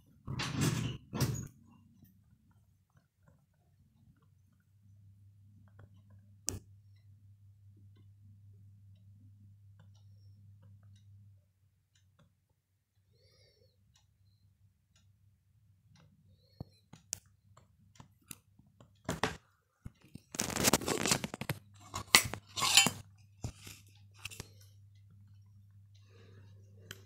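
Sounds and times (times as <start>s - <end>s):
tin handling clicks and clinks: 20.4s - 24.5s.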